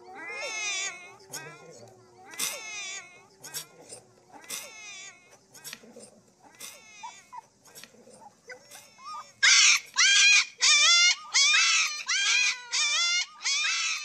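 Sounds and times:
loud high animal cries: 0.0s - 1.6s, 8.6s - 14.0s
puppy whining: 0.0s - 14.0s.

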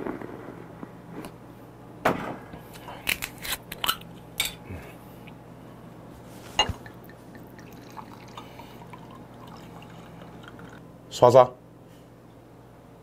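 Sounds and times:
drink trickling into glass: 6.6s - 10.8s.

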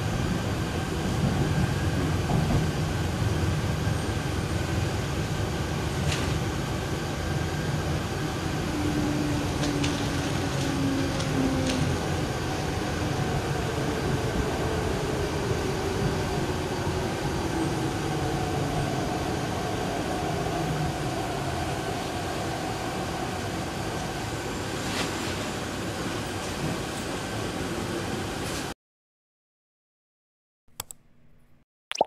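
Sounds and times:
train running gear rumble: 0.0s - 19.8s, 24.1s - 27.8s.

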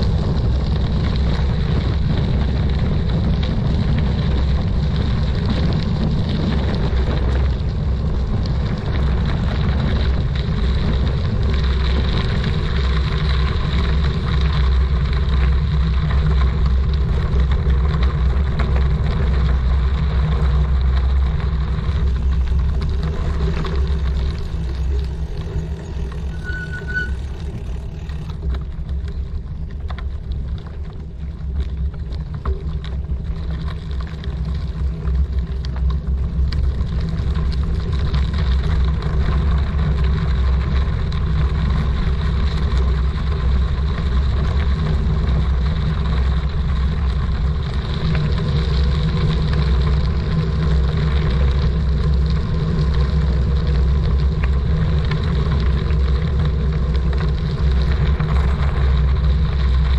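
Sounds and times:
bicycle tyre noise: 0.0s - 59.9s
wind buffeting microphone: 0.0s - 59.9s
short high chirp: 26.2s - 27.4s.

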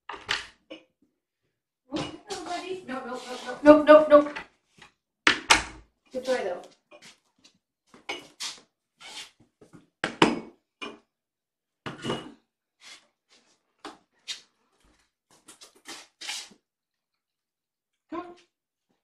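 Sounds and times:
food bowls knocking and clattering: 1.9s - 2.6s, 5.3s - 5.9s, 8.0s - 8.4s, 10.0s - 11.1s, 11.9s - 12.4s.

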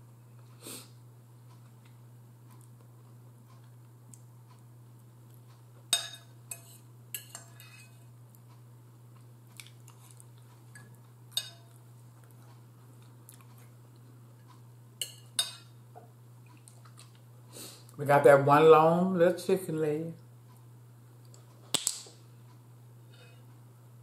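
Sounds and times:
cutlery clinking against a bowl: 5.9s - 8.1s, 10.7s - 11.8s, 15.0s - 15.8s.

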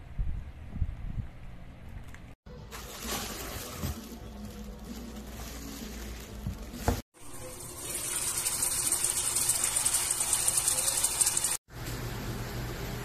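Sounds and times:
food sizzling and bubbling in a pot: 7.2s - 13.0s.

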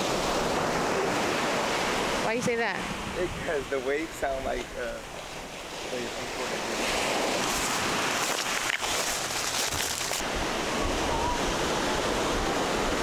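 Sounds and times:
ocean surf breaking on beach: 0.0s - 13.0s.

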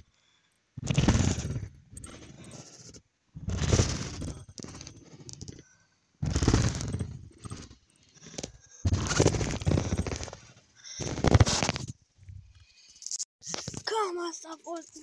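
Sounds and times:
trampoline thumping: 0.8s - 2.2s, 3.4s - 4.9s, 6.2s - 7.7s, 8.8s - 10.5s.

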